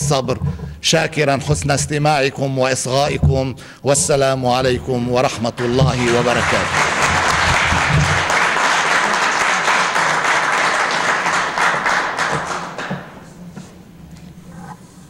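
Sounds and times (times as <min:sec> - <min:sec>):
audience applauding: 0:05.6 - 0:13.3.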